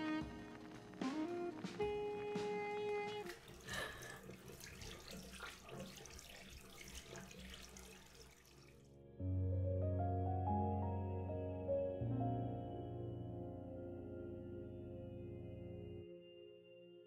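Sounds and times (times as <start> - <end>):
soft piano music: 0.0 - 3.6, 8.8 - 17.0
water running and splashing: 2.3 - 8.9.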